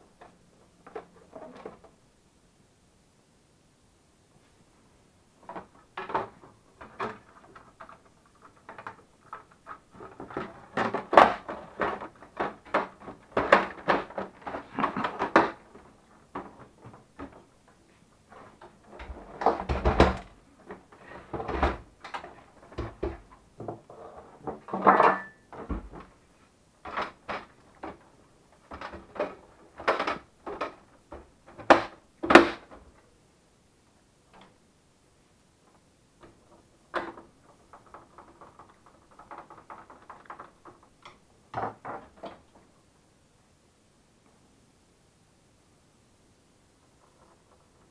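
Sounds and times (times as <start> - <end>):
plastic parts clicking and scraping: 5.4 - 26.2, 26.8 - 33.0, 36.2 - 42.6.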